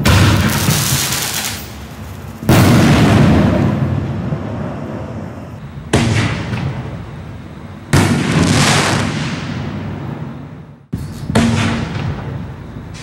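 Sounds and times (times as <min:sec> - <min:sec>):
aerial shell bang with long echo: 0:02.5 - 0:04.5.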